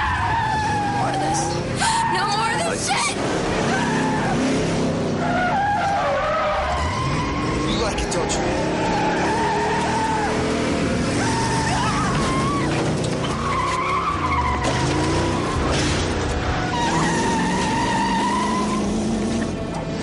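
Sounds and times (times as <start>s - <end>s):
car engine running hard: 0.0s - 20.0s
tyres squealing: 5.2s - 19.6s.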